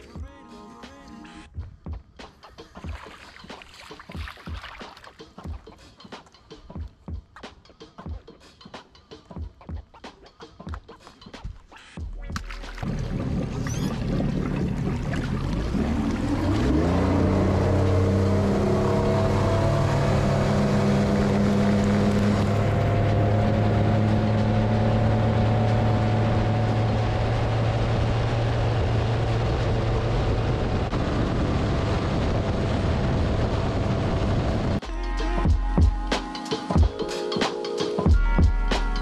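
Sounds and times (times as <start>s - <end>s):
water rushing off hull: 2.9s - 5.2s, 12.4s - 34.8s
outboard motor accelerating: 12.3s - 34.8s.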